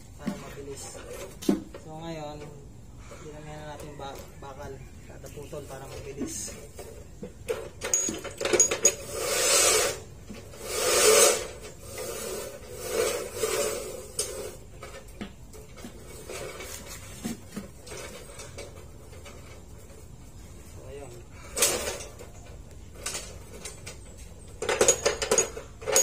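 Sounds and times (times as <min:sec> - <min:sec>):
metal rods scraping over concrete: 0:00.2 - 0:01.7, 0:03.1 - 0:26.0
metal rods clinking: 0:05.9 - 0:09.5, 0:21.4 - 0:26.0.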